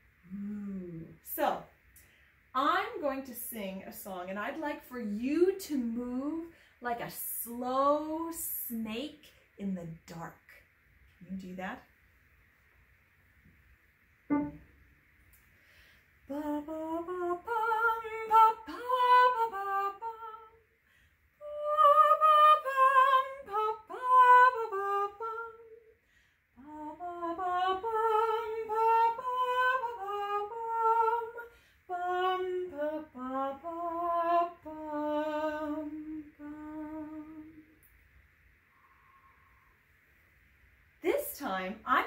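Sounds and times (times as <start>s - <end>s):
woman singing unaccompanied: 16.3s - 20.6s, 21.4s - 25.8s, 26.6s - 37.6s.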